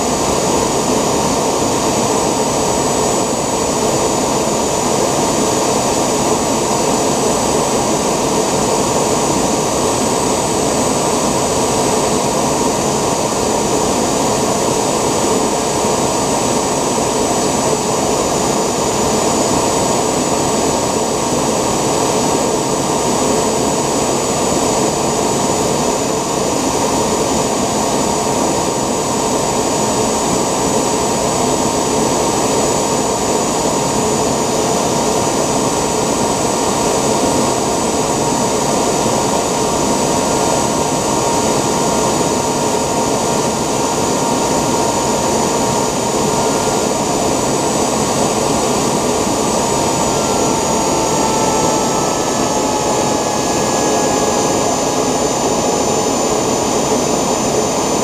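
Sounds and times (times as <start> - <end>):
jet engine rush and whine: 0.0 - 58.0.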